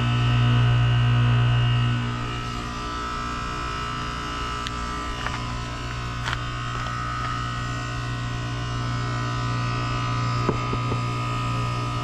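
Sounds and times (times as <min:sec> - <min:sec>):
heat pump humming: 0:00.0 - 0:12.0.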